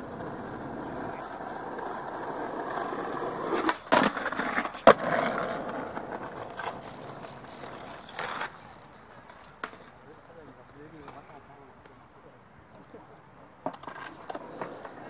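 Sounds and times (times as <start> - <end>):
skateboard clacking: 0.0 - 9.9, 13.6 - 15.0
skateboard wheels rolling on asphalt: 0.0 - 11.5, 12.7 - 15.0.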